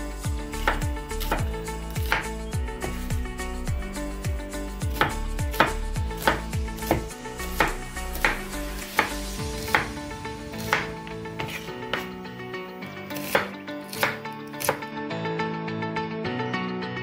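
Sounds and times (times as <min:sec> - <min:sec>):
knife chopping on wooden board: 0:00.6 - 0:03.1, 0:04.9 - 0:10.0, 0:10.6 - 0:12.2, 0:13.1 - 0:14.8.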